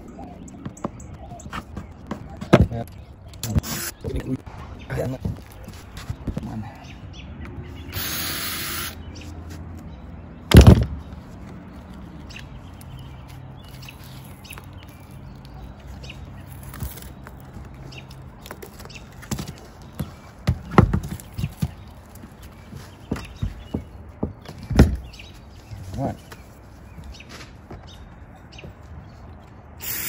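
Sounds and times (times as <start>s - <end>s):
cordless drill running: 7.9s - 9.0s, 29.8s - 30.0s
loud thump: 10.5s - 11.0s
sharp cracks and knocks: 10.5s - 11.1s.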